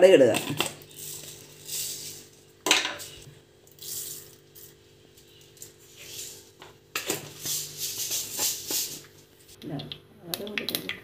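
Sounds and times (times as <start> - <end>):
seeds sizzling in hot oil: 0.8 - 2.4.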